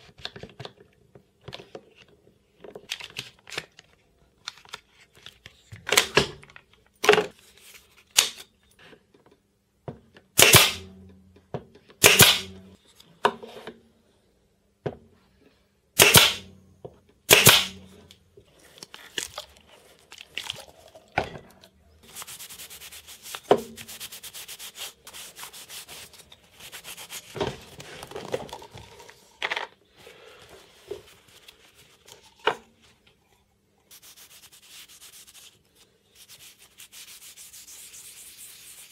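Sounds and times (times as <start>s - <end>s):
cloth rag rubbing: 33.9s - 38.9s.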